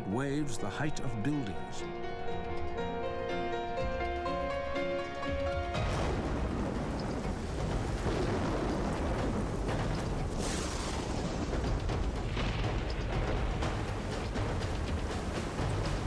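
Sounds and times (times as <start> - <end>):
storm wind rumble: 5.3 - 16.0
heavy sea surges: 5.8 - 16.0.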